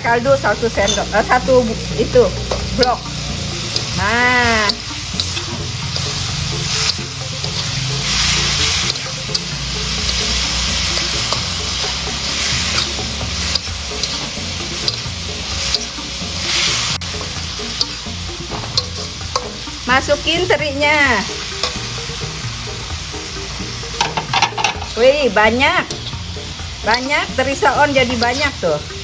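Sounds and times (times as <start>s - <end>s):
sauce sizzling in hot oil: 0.0s - 29.0s
spatula clicking against pan: 3.6s - 4.0s, 4.6s - 7.7s, 8.8s - 16.0s
metal spatula scraping a wok: 4.7s - 18.0s.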